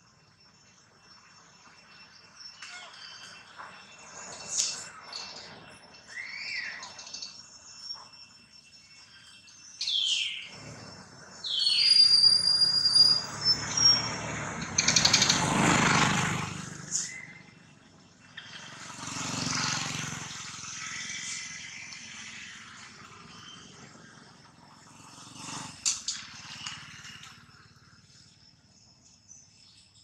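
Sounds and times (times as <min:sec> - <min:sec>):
high falling chirps: 0:01.4 - 0:15.4
motorbike passing: 0:10.0 - 0:29.5
faint vehicle passing: 0:13.2 - 0:29.2.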